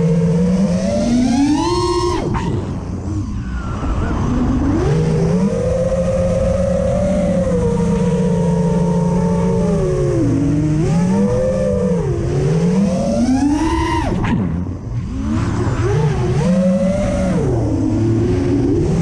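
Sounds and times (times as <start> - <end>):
drone motors whining: 0.0 - 19.0
wind on microphone: 1.1 - 12.3.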